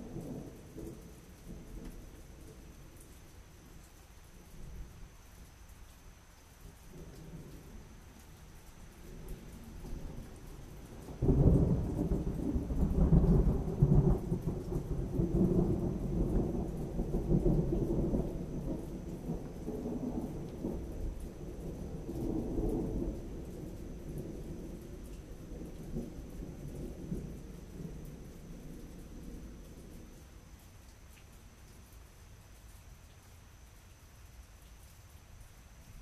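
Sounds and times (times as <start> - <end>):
thunder rumbling: 9.0 - 30.4.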